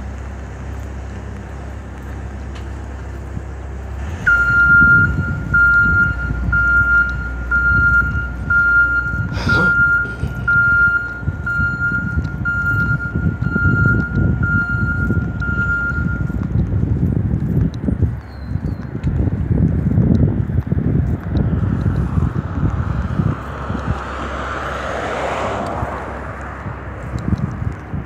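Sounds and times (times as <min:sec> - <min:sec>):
truck engine rumble: 0:00.0 - 0:28.0
truck reversing alarm beeps: 0:04.2 - 0:16.6.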